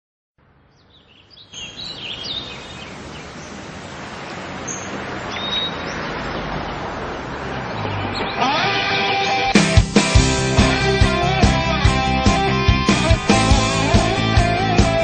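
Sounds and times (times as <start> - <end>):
birds chirping: 0.4 - 15.0.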